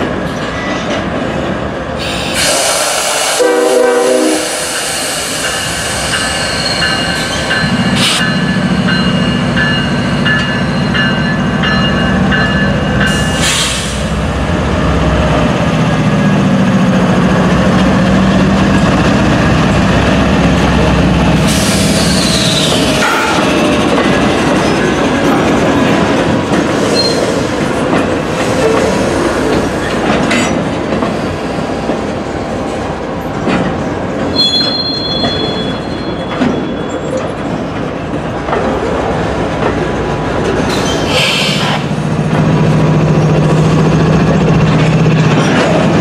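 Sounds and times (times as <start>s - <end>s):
freight train wheels rumbling: 0.0s - 46.0s
locomotive horn blast: 2.4s - 4.7s.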